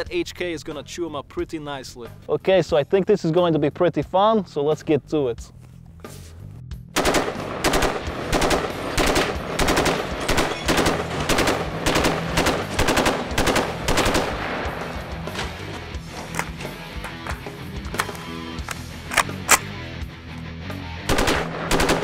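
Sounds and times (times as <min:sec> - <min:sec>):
rifle firing rapid shots: 0:07.0 - 0:14.8, 0:21.1 - 0:22.0.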